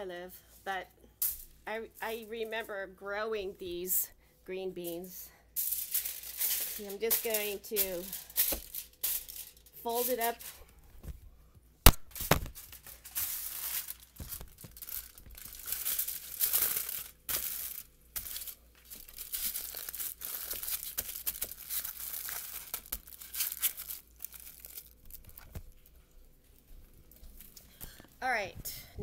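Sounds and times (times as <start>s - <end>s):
aluminium foil crinkling: 4.8s - 10.8s, 11.9s - 28.1s.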